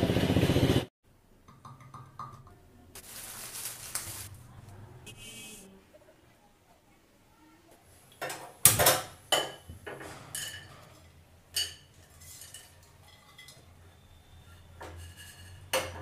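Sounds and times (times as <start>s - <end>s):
spices clinking in a metal pan: 10.3s - 13.8s, 14.8s - 16.0s.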